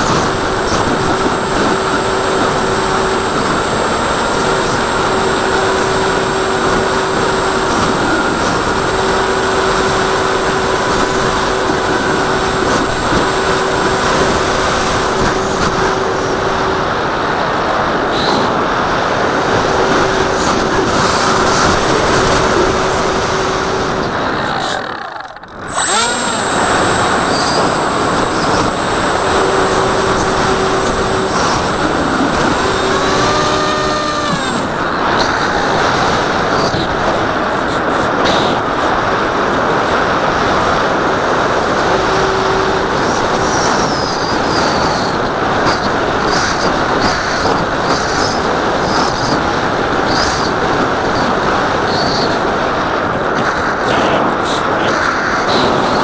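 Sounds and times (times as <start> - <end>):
electric motor and propeller: 0.0 - 56.0
rushing wind noise: 0.0 - 56.0
tone rising and falling: 22.7 - 34.8.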